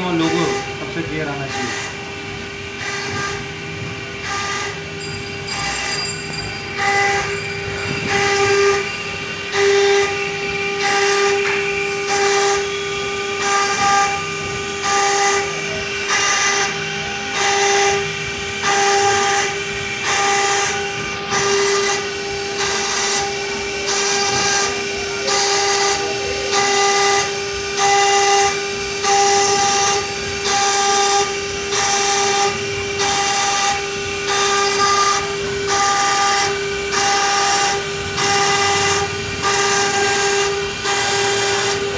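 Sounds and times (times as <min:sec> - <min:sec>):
spindle high whine: 0:00.0 - 0:27.8.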